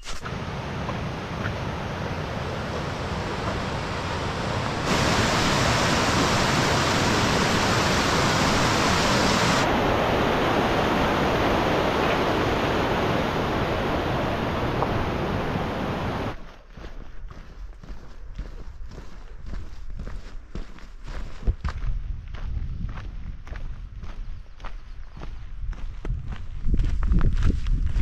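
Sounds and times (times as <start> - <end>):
creek rushing over boulders: 0.3 - 16.4.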